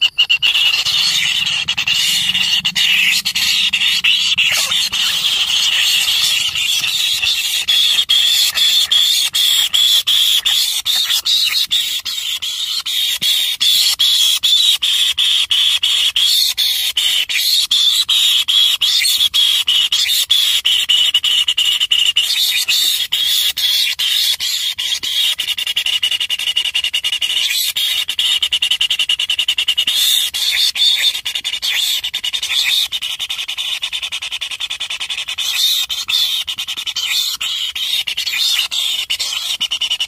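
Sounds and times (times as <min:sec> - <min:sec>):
nestlings squealing: 0:00.0 - 0:19.2, 0:29.6 - 0:40.0.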